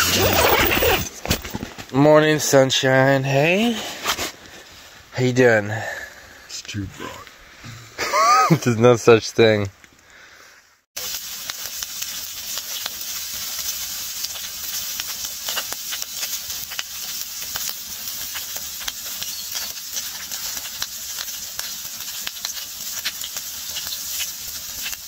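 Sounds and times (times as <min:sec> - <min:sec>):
pops and crackles: 0:11.0 - 0:25.0
steaks sizzling on hotplate: 0:11.0 - 0:25.0.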